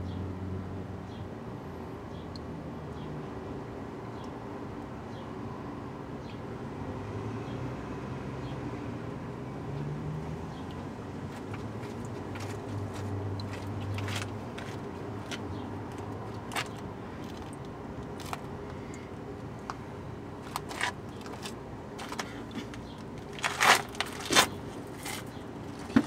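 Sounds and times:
crunching and scraping on gravel: 11.3 - 18.5, 20.4 - 26.0.

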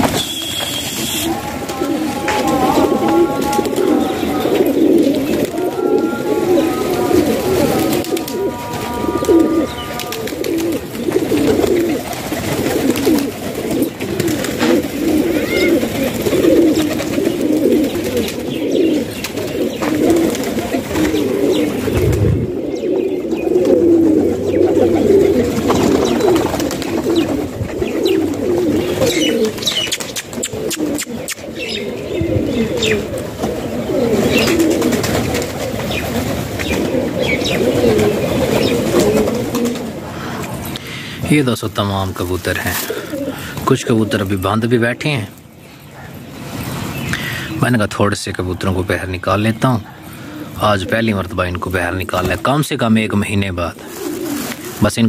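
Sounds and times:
pigeons cooing: 0.0 - 55.0.

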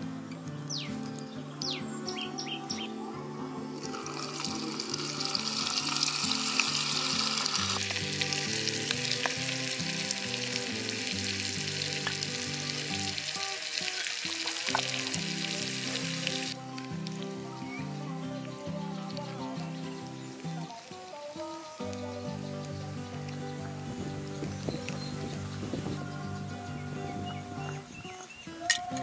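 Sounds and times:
soft background music: 0.0 - 29.0
food sizzling in hot oil: 3.8 - 17.6.

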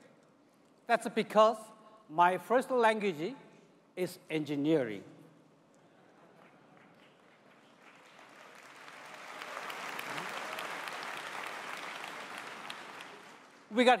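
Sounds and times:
audience applauding: 6.4 - 13.7.

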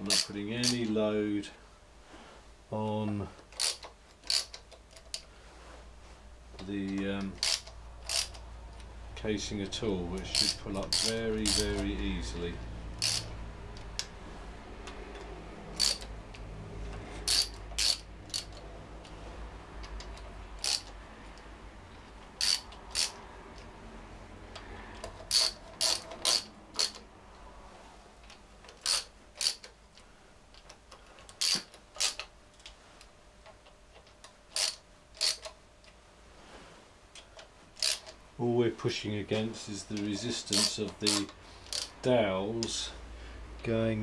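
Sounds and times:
ratchet spanner clicking: 0.0 - 0.9, 3.5 - 5.2, 7.2 - 8.9, 10.2 - 12.4, 13.0 - 14.2, 14.8 - 19.2, 19.8 - 23.7, 24.5 - 27.1, 28.7 - 29.8, 30.5 - 32.3, 34.5 - 35.6, 37.2 - 38.2, 40.0 - 42.0.

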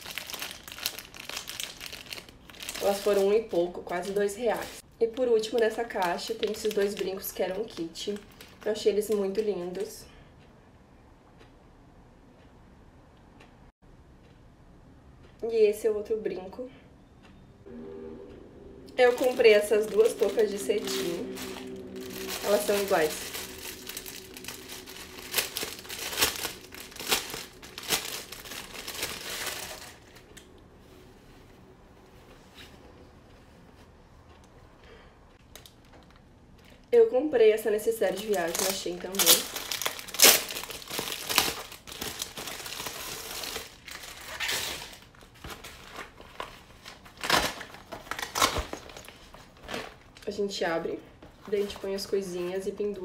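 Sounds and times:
plastic bag crinkling: 0.0 - 9.9, 19.0 - 30.4, 38.0 - 50.3.

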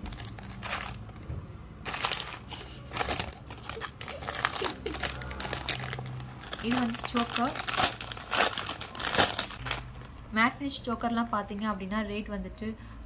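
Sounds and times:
plastic packet crinkling: 0.0 - 1.2, 1.8 - 10.2.

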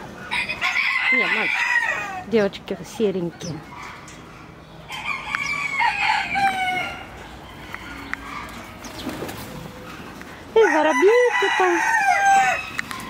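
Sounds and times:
rooster crowing: 0.3 - 2.3, 4.9 - 8.7, 10.6 - 13.0.

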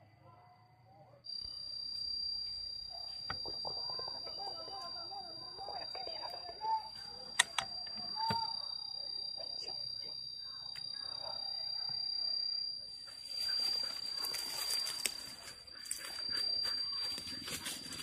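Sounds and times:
high-pitched insect drone: 1.3 - 18.0.

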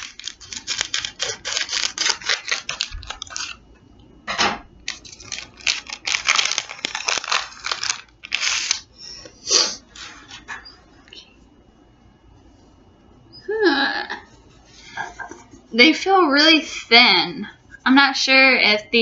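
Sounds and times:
plastic wrapper crinkling: 0.0 - 3.6, 4.8 - 8.9
scissors cutting plastic: 0.0 - 3.6, 4.8 - 8.8.

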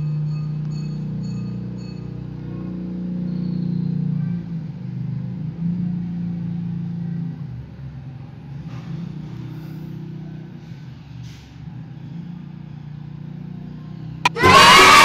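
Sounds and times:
loud music: 14.3 - 15.0.

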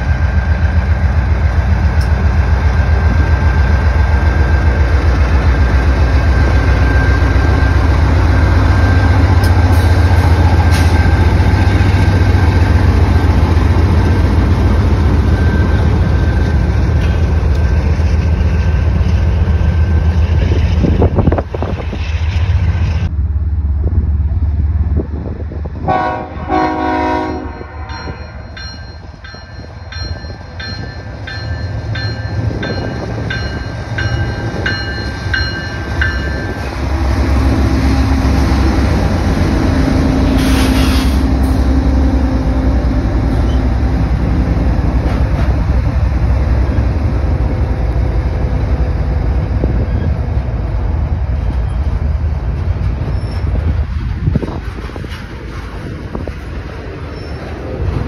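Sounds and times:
locomotive engine rumble: 0.0 - 58.0
locomotive horn: 25.8 - 27.9
bell ringing: 27.4 - 36.7.

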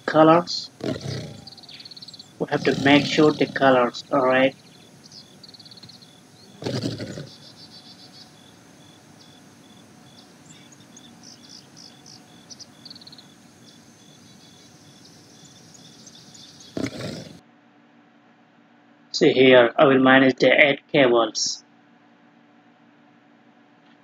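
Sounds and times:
insects and birds chirping: 0.0 - 17.4.

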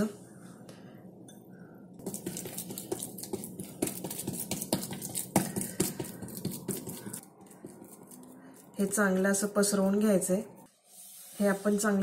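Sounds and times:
hands patting dough: 2.0 - 8.2.

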